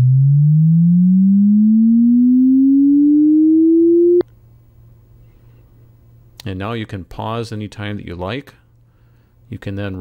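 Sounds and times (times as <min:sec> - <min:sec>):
rising sine tone sweep: 0:00.0 - 0:04.2.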